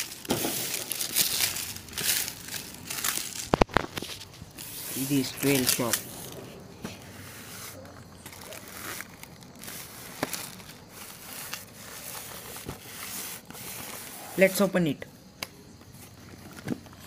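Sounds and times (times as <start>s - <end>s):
cardboard box rustling and crinkling: 0.0s - 14.2s.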